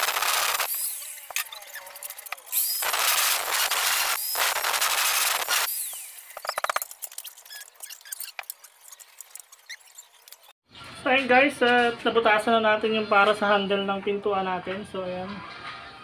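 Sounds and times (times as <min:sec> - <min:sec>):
electric drill grinding metal: 0:00.0 - 0:10.5.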